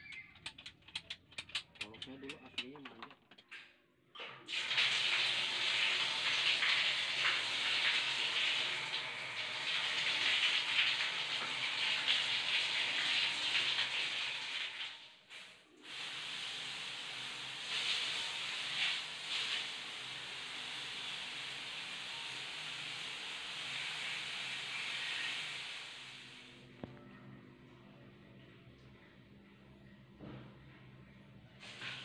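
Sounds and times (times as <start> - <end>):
water gushing from tap: 4.5 - 26.6, 31.6 - 32.0.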